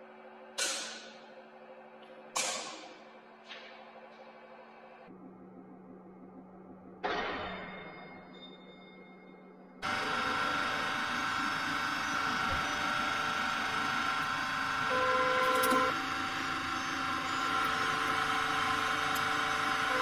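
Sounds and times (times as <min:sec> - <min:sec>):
hydraulic pump motor running: 0:09.8 - 0:20.0.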